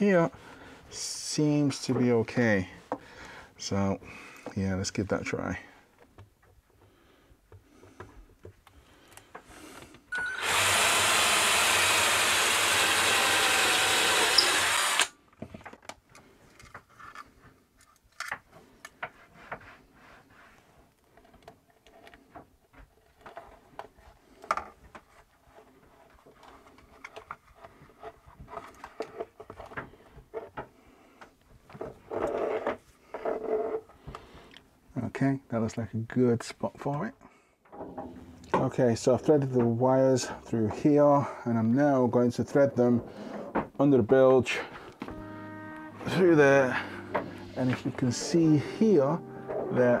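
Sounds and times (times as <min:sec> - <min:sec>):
cordless drill boring wood: 0:10.1 - 0:15.2.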